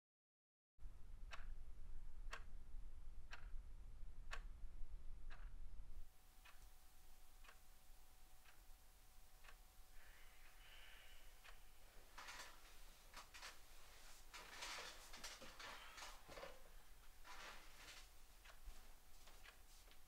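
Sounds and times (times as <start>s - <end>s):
low rumble: 0.8s - 6.1s
clock ticking: 1.2s - 1.6s, 2.2s - 2.5s, 3.3s - 3.6s, 4.3s - 4.5s, 5.3s - 13.6s, 14.2s - 20.0s.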